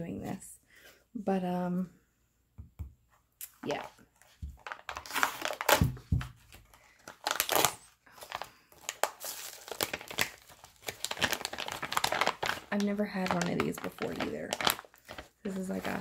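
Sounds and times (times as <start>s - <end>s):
plastic bag crinkling: 4.5s - 16.0s.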